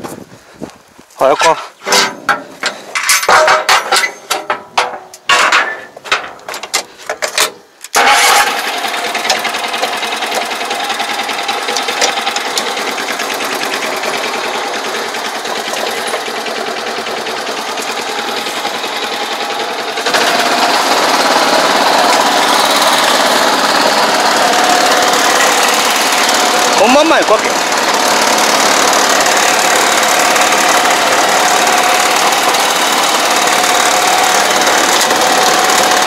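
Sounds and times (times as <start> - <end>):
loud knocks and clatters: 1.8 - 7.6, 9.0 - 36.0
small engine running: 8.0 - 36.0.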